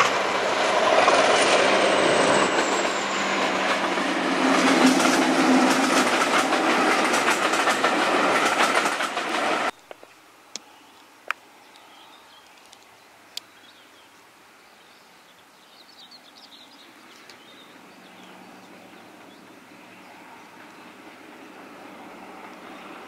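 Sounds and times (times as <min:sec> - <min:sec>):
distant locomotive engine humming: 0:00.0 - 0:09.8, 0:16.7 - 0:23.0
birds chirping: 0:10.6 - 0:23.0.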